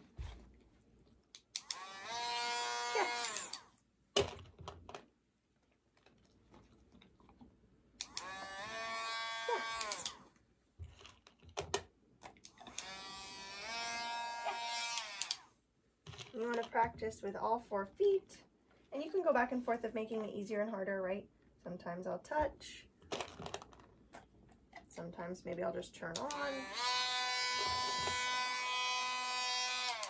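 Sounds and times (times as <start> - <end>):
nail grinder motor whine: 1.5 - 3.8, 8.0 - 10.3, 12.6 - 15.5, 26.2 - 30.0.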